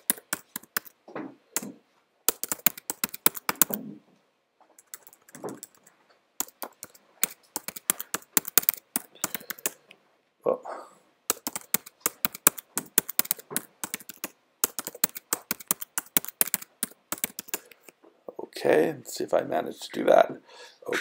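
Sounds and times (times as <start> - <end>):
typing on computer keyboard: 0.0 - 1.0, 2.3 - 3.8, 4.8 - 9.8, 11.3 - 17.9.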